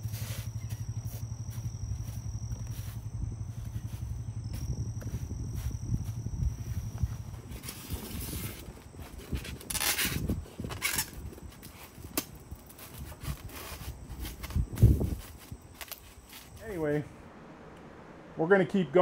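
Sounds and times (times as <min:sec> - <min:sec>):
foam scraping and rustling: 0:00.0 - 0:01.7, 0:06.9 - 0:16.8
low rumble: 0:00.0 - 0:11.4, 0:16.5 - 0:18.5.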